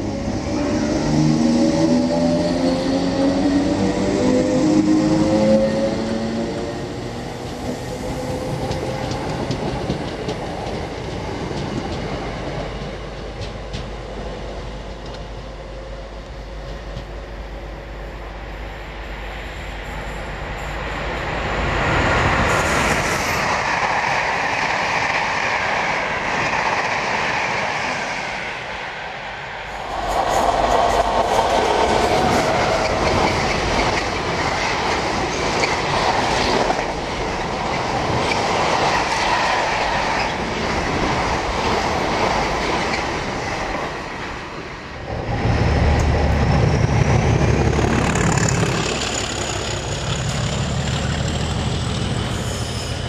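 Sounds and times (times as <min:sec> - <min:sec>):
electric train whine: 0:00.0 - 0:53.0
electric train running in: 0:16.2 - 0:53.0.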